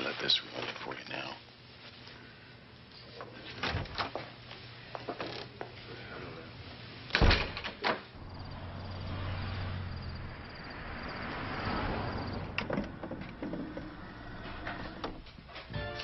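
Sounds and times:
door thump: 0:07.2 - 0:07.8.

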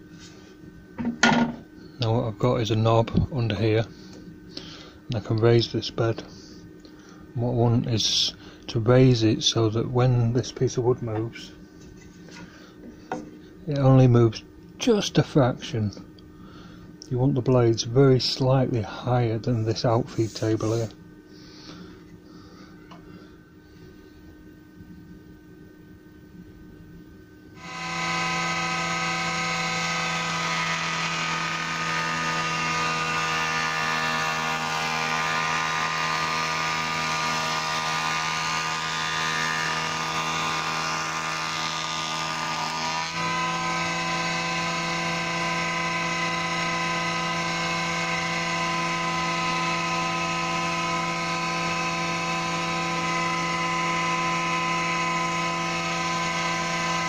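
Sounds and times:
surface planer running: 0:19.9 - 0:20.9, 0:27.6 - 0:57.0.

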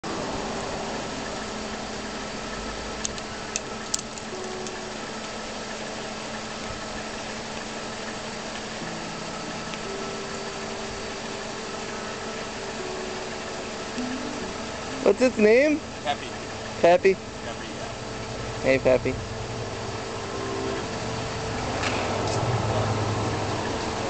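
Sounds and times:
car engine idling: 0:00.0 - 0:24.0
sharp clicks: 0:03.0 - 0:04.8.

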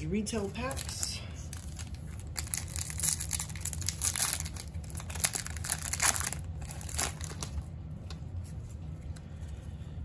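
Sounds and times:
foil wrapper crinkling: 0:00.4 - 0:07.7.

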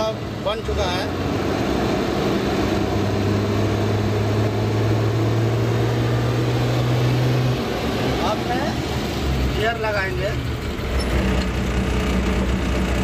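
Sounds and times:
diesel engine idling: 0:07.6 - 0:13.0.

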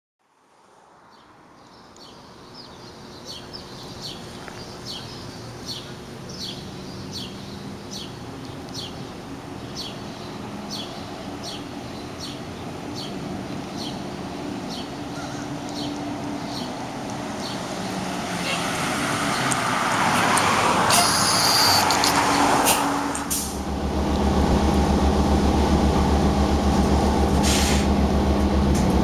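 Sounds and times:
bird chirping: 0:01.1 - 0:18.0
bus diesel engine hum: 0:02.2 - 0:29.0.

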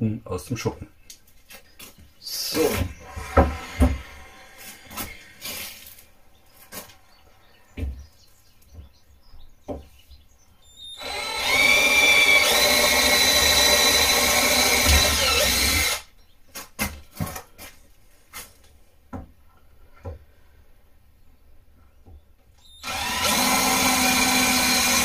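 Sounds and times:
cordless drill boring sheet metal: 0:10.9 - 0:16.1, 0:22.7 - 0:25.0.

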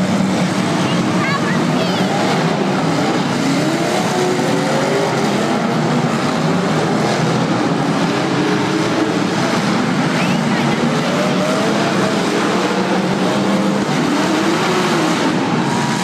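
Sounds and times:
car engines revving: 0:00.0 - 0:16.0.

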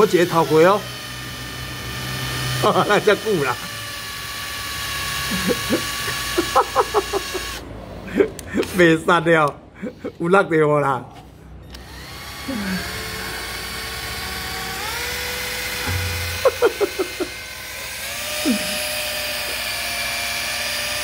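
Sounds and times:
cordless drill whining: 0:00.0 - 0:09.0, 0:11.6 - 0:21.0.

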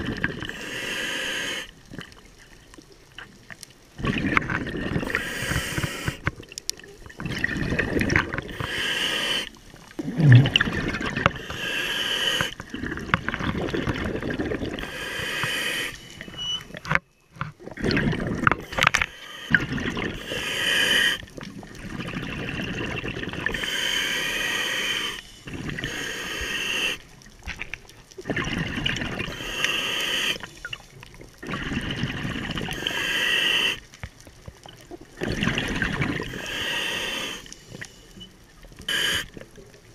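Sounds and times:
gurgling exhaled bubbles: 0:00.0 - 0:16.6, 0:17.5 - 0:33.8, 0:34.6 - 0:37.9
diver breathing through regulator: 0:00.4 - 0:01.7, 0:04.9 - 0:06.3, 0:08.4 - 0:10.6, 0:11.2 - 0:13.0, 0:14.7 - 0:16.4, 0:18.6 - 0:21.3, 0:23.4 - 0:27.0, 0:29.2 - 0:30.5, 0:32.7 - 0:33.8, 0:36.2 - 0:38.2, 0:38.9 - 0:39.4.

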